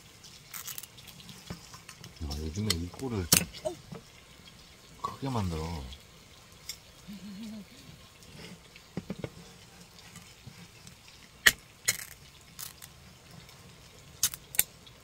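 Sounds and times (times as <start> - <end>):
drink can opening crack: 11.4 - 12.9, 14.2 - 14.7.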